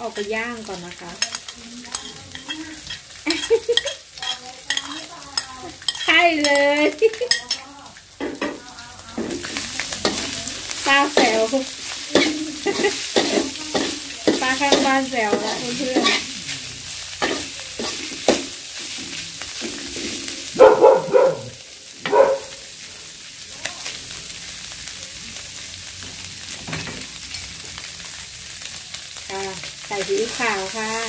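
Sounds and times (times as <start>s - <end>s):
food sizzling in hot oil: 0.0s - 31.0s
metal spatula clacking on wok: 1.2s - 7.6s, 12.1s - 16.2s
dog barking: 20.5s - 22.6s.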